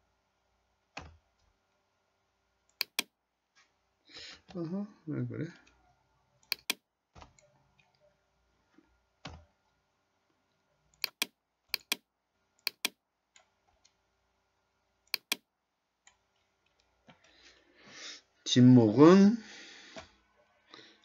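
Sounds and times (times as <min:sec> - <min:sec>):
mouse and keyboard clicks: 0:02.7 - 0:03.1, 0:06.4 - 0:08.0, 0:11.0 - 0:12.0, 0:12.6 - 0:14.0, 0:15.1 - 0:15.4.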